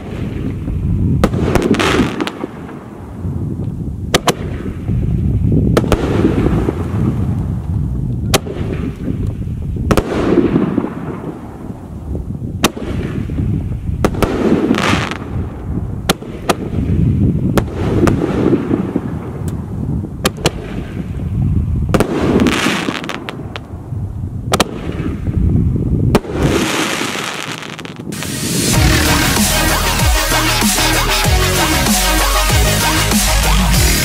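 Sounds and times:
fireworks bangs: 0.0 - 3.2, 4.1 - 7.7, 8.3 - 9.2, 9.8 - 21.2, 21.9 - 23.9, 24.5 - 25.4, 26.1 - 31.2
fireworks hissing bursts: 26.2 - 34.0
low rumble: 28.2 - 31.9.

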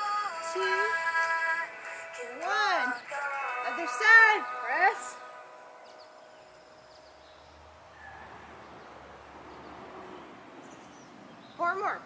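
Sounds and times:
faint bird chirps: 5.8 - 11.7.

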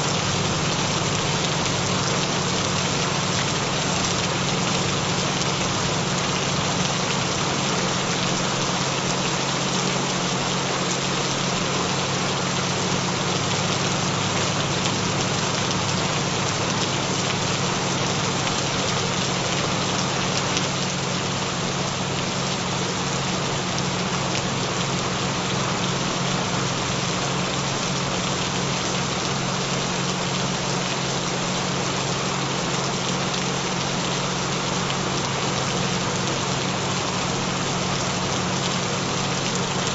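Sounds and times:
gentle rain: 0.0 - 39.9.

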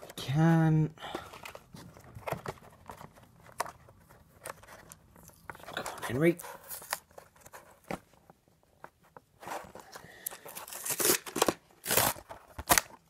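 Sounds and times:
plastic packaging clicking and crinkling: 1.1 - 8.2, 9.1 - 13.0
packaging tearing and rustling: 9.4 - 13.0.

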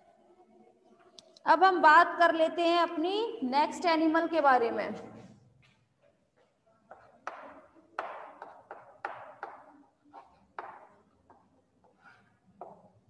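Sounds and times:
chalk tapping and scratching: 6.4 - 13.0.

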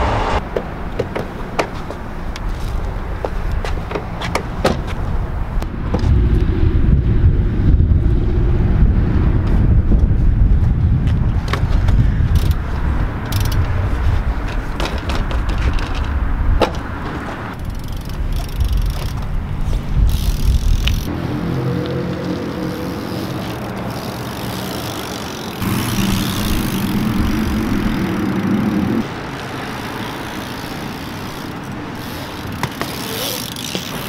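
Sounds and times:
low outdoor rumble: 5.2 - 14.8, 21.8 - 32.7.

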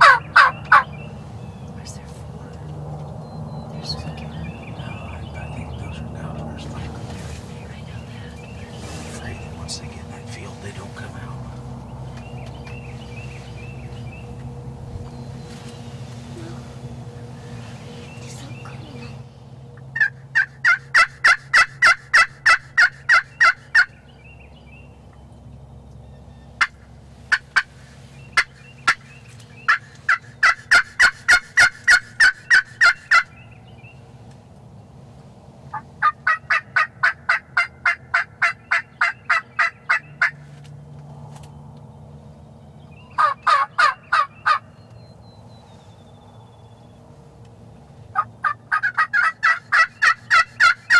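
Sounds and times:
turkey call yelping: 0.0 - 1.0, 20.0 - 24.0, 29.7 - 33.4, 35.7 - 40.4, 43.1 - 44.7, 48.1 - 50.9.

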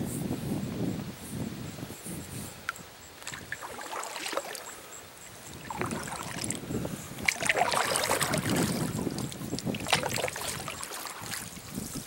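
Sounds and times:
paddle splashing in water: 3.2 - 11.8.

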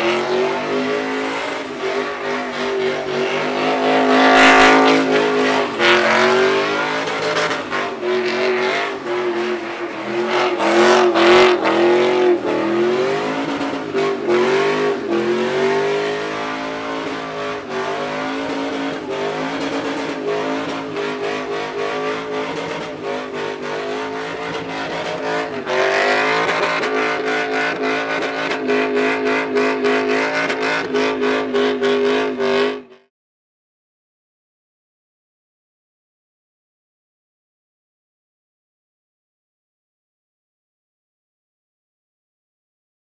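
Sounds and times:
pickup engine at high revs: 0.0 - 32.9.

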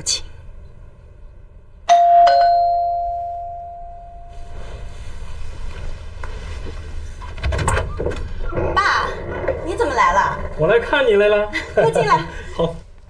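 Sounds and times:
doorbell ding-dong chime: 1.9 - 4.6.

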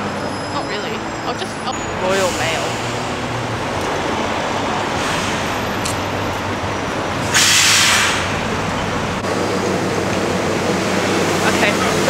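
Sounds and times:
vehicle engines rumbling: 0.0 - 12.0
loud hiss: 7.3 - 8.3.

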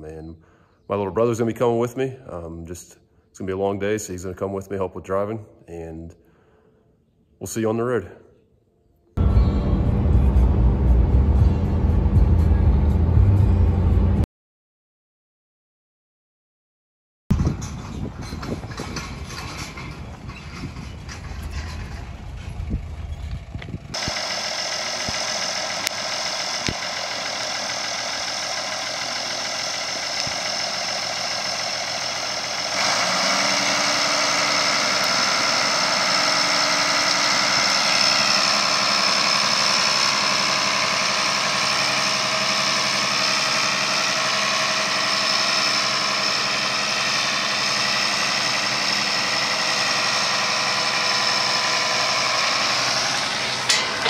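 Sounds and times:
tractor diesel engine running: 9.2 - 14.2, 17.3 - 54.0
tractor driving on gravel: 17.3 - 54.0.

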